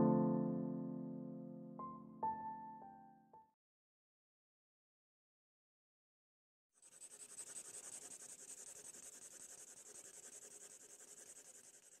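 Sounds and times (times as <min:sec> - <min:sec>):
faint fluttering scratching: 0:06.8 - 0:12.0.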